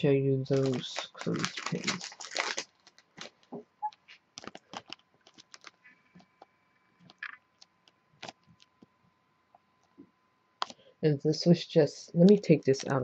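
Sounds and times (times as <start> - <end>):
cellophane bag crinkling: 0.4 - 5.9
faint irregular clicks: 3.4 - 10.8.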